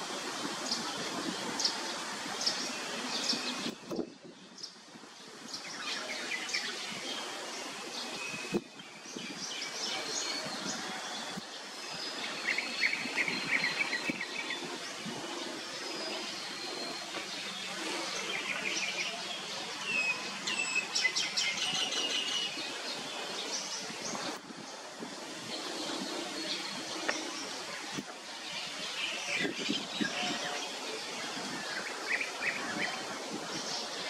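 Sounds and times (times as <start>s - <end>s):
outdoor background hiss: 0.0s - 34.0s
birds chirping and calling: 11.9s - 24.4s.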